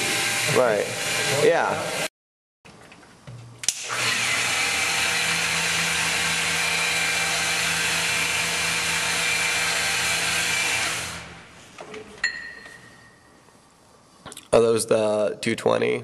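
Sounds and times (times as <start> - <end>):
electric polisher running: 0.0 - 2.1, 3.7 - 11.4.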